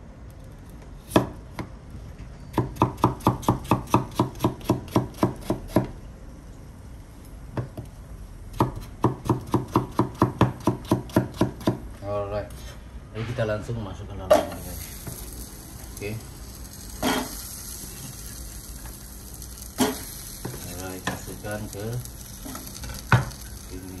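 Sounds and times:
knife chopping potato on board: 0:02.5 - 0:05.9, 0:08.5 - 0:11.8.

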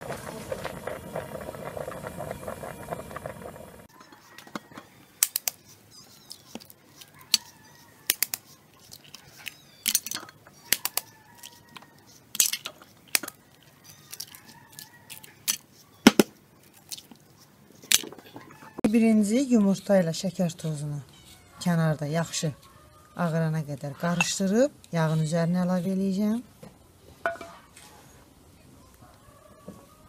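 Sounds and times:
eggshells cracking: 0:05.2 - 0:05.6, 0:06.2 - 0:18.3.

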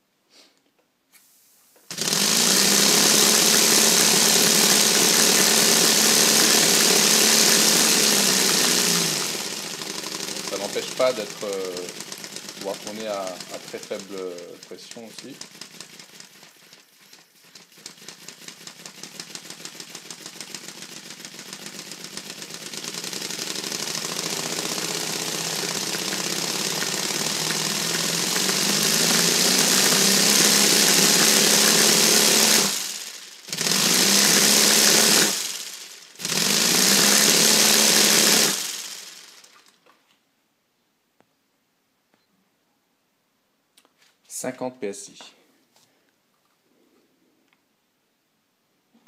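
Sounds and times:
compressed-air engine puffing: 0:01.2 - 0:39.6.

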